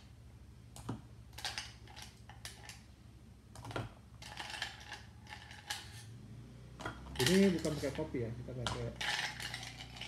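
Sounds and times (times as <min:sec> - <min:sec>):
ice cubes clinking against cups: 0:04.2 - 0:06.0, 0:07.2 - 0:07.9, 0:08.7 - 0:10.0.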